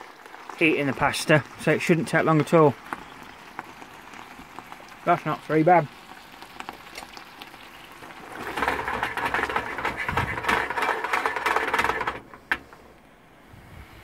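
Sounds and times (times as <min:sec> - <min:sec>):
sauce sizzling: 0:00.0 - 0:11.6
frying pan rattling on stove: 0:08.0 - 0:12.8.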